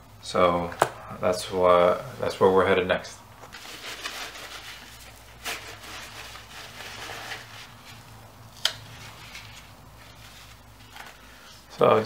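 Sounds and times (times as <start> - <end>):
low steady hum: 0.0 - 12.0
paper rustling: 3.4 - 11.5.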